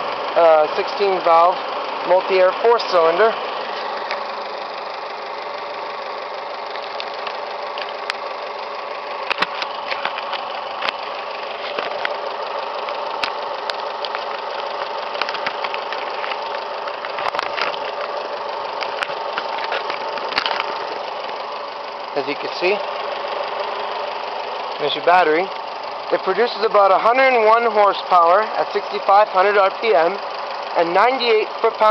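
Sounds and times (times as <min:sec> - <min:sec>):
car engine idling: 0:00.0 - 0:31.9
sharp clicks: 0:06.8 - 0:08.2, 0:12.8 - 0:18.2, 0:18.8 - 0:21.4.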